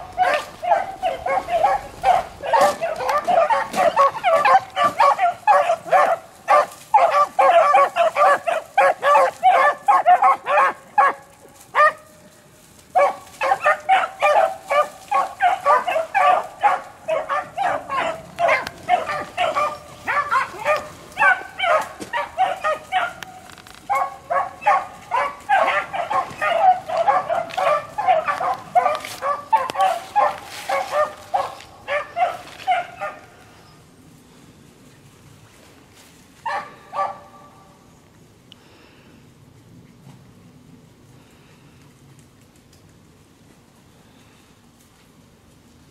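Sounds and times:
hounds baying: 0.0 - 12.2, 12.9 - 33.8, 36.4 - 37.5.

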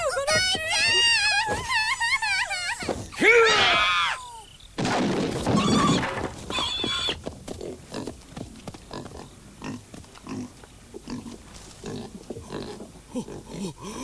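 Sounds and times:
pig squealing: 5.6 - 7.2
pig grunting: 11.1 - 14.0.

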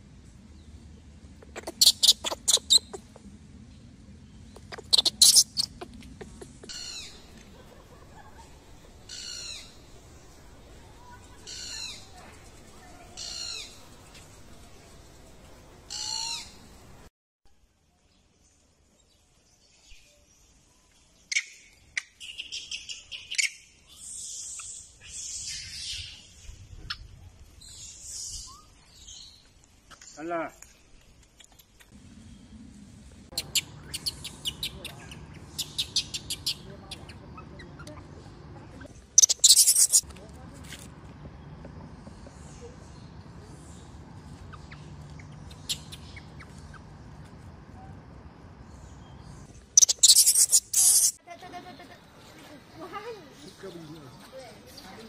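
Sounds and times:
falling monkey call: 1.5 - 3.2, 15.9 - 16.6
baby monkey shrill cries: 1.6 - 3.0, 4.7 - 5.8, 39.2 - 40.0, 49.8 - 51.2.

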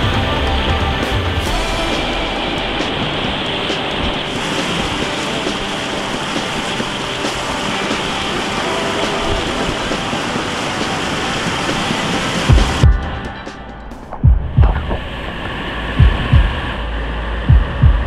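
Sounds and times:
river rapids rushing: 0.0 - 14.2.

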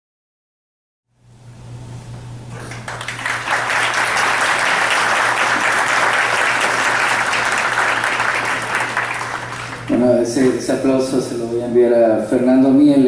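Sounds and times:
audience applauding: 2.6 - 10.4.

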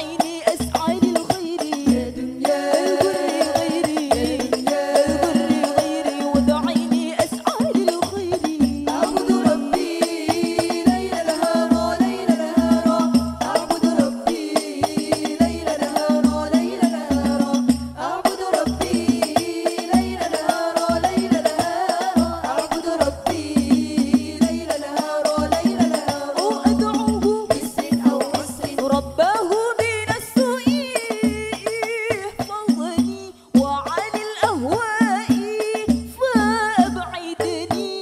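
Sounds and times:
frame drums beating: 0.0 - 29.2
women singing devotional song: 0.0 - 38.0.

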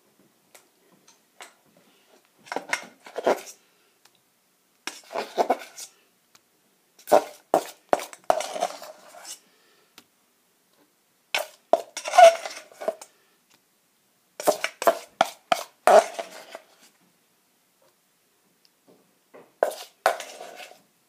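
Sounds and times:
knife scraping and clinking bowl: 7.0 - 9.4, 11.4 - 13.1, 14.4 - 16.7, 19.6 - 20.8.

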